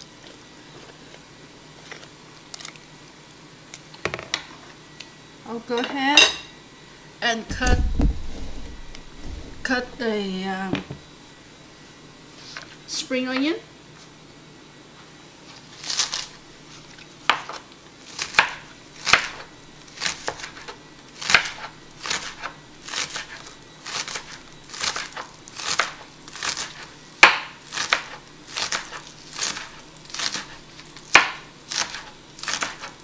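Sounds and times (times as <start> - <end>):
knife slicing spring onions: 17.3 - 33.0.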